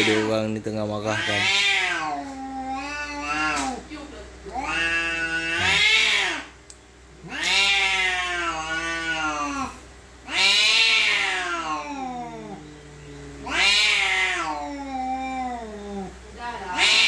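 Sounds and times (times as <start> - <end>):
cat yowling angrily: 0.0 - 0.3, 1.1 - 3.8, 4.6 - 6.5, 7.2 - 12.6, 13.4 - 16.1, 16.7 - 17.0.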